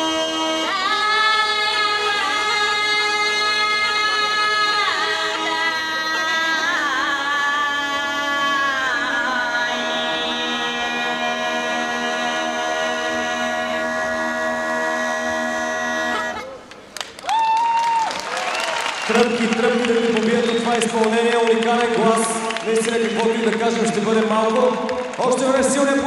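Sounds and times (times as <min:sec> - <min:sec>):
woman singing folk song: 0:00.0 - 0:16.1.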